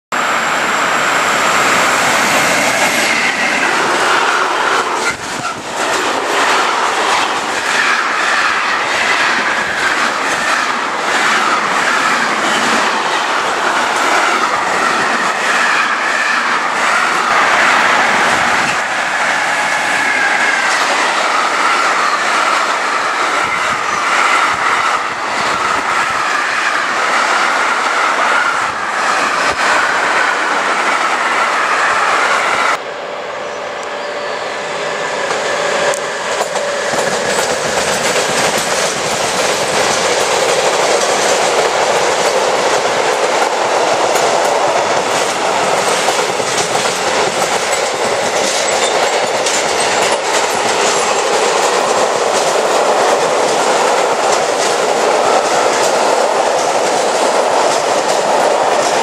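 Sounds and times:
train wheels rumbling over rail joints: 1.1 - 31.4, 35.2 - 59.0
high wheel squeal: 31.5 - 37.2.

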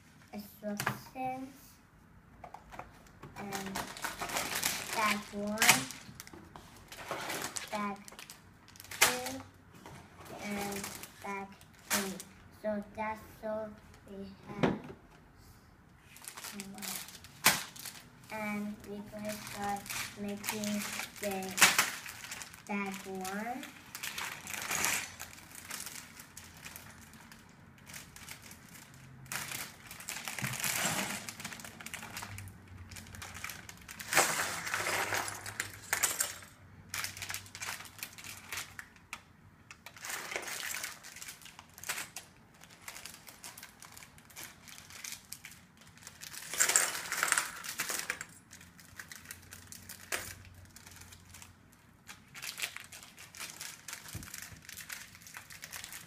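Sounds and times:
plastic bags crinkling: 2.7 - 9.5, 10.2 - 12.4, 16.0 - 56.0
plastic bricks clattering: 29.3 - 38.8, 39.9 - 51.5.

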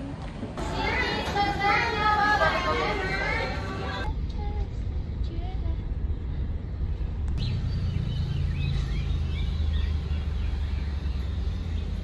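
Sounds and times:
car engine idling: 4.0 - 12.0
birds chirping: 6.2 - 12.0.

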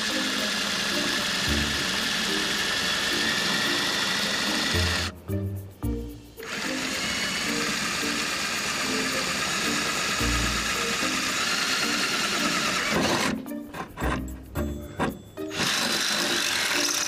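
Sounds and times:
drill cutting sheet metal: 0.0 - 5.1, 6.4 - 14.2, 15.5 - 17.0
background music with bass: 4.3 - 15.6.

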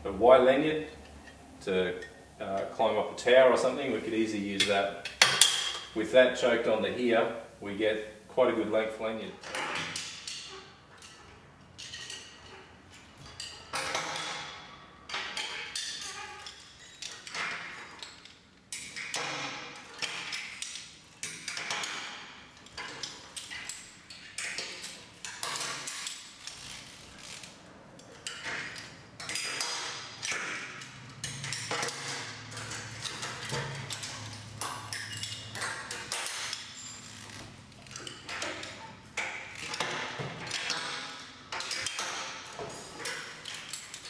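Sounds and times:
metal carabiners clicking: 9.4 - 44.0.

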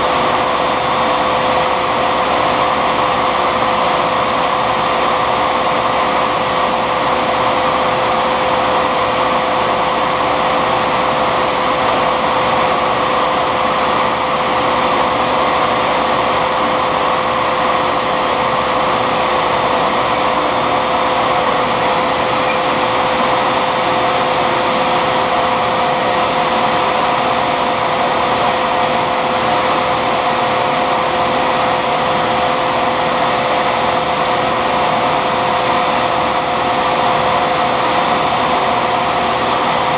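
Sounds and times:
shop vac running: 0.0 - 39.9
higher whine: 9.3 - 36.5.

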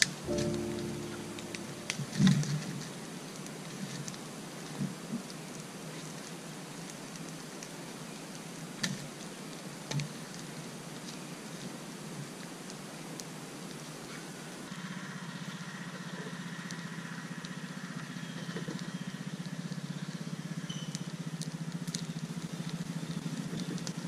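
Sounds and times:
campfire crackling and popping: 18.8 - 24.0.

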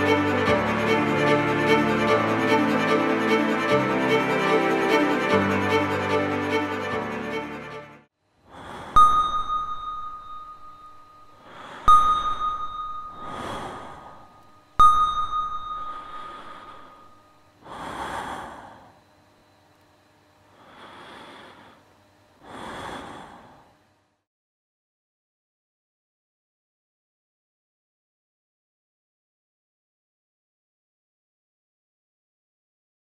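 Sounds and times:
bowed string music: 0.0 - 8.1
soft breathy swells: 8.5 - 14.6, 15.4 - 19.0
struck chime notes: 9.0 - 17.4.

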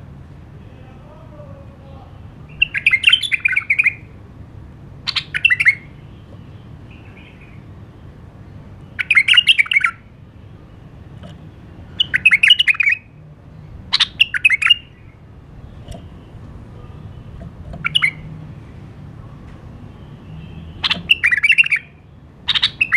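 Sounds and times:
bird warbling song: 2.4 - 4.1, 5.1 - 8.0, 8.8 - 10.0, 11.0 - 13.1, 13.7 - 18.9, 19.8 - 22.9.

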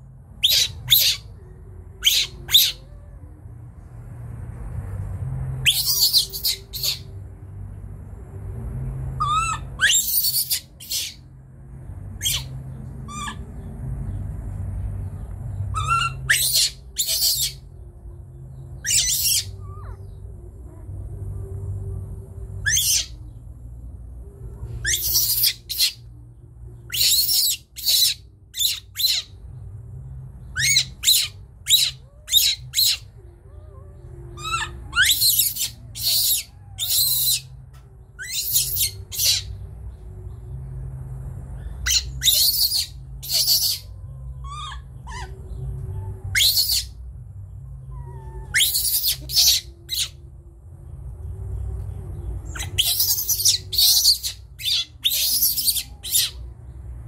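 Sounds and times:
baby monkey shrieking: 0.4 - 1.4, 2.0 - 3.0, 5.6 - 7.1, 9.2 - 11.2, 12.2 - 13.6, 15.7 - 17.7, 18.8 - 20.2, 22.6 - 23.2, 24.8 - 26.0, 26.9 - 29.3, 30.5 - 33.1, 34.3 - 37.6, 38.2 - 39.6, 41.6 - 47.0, 47.7 - 50.2, 52.5 - 56.5.

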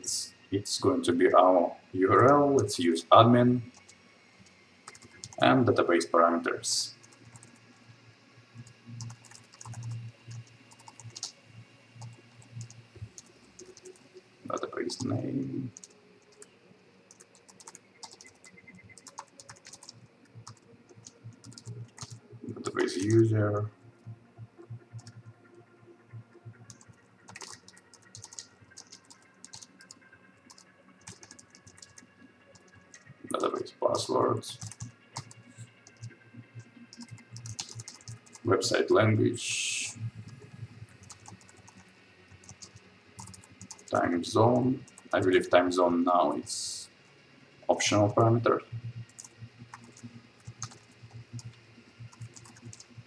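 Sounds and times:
computer keyboard typing: 3.3 - 4.0, 4.8 - 5.8, 6.9 - 7.6, 8.6 - 11.4, 12.0 - 16.5, 17.1 - 23.6, 25.0 - 25.2, 26.7 - 36.2, 36.9 - 38.9, 39.8 - 44.1, 49.0 - 53.0.

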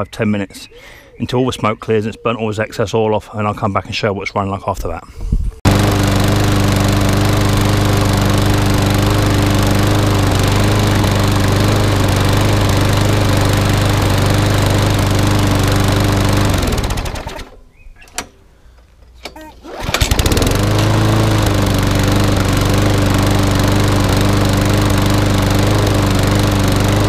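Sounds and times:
lawnmower engine running: 5.7 - 17.6, 19.6 - 27.0.

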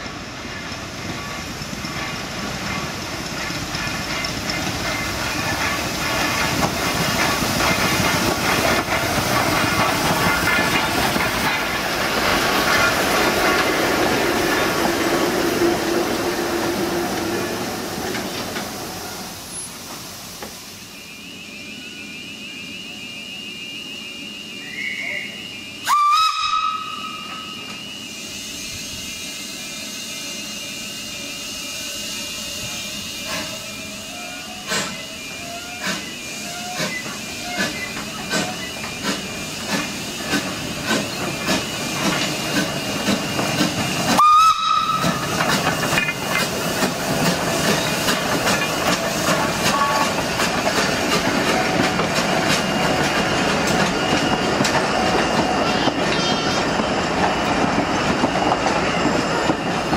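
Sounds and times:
train wheel clatter: 0.0 - 20.6, 34.5 - 59.9
steam hissing: 0.0 - 59.9
steam locomotive exhaust beats: 0.0 - 59.9
steam whistle blast: 20.7 - 38.7, 44.1 - 45.4, 49.6 - 50.2.

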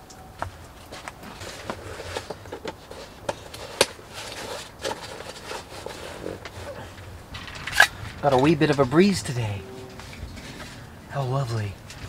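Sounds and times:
camping gear rustling: 0.0 - 12.0.

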